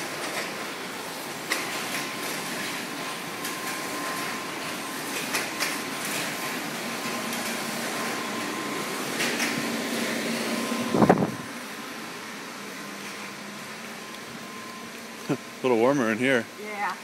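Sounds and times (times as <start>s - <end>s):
factory machinery drone: 0.0s - 17.0s
thin steady whine: 0.0s - 17.0s.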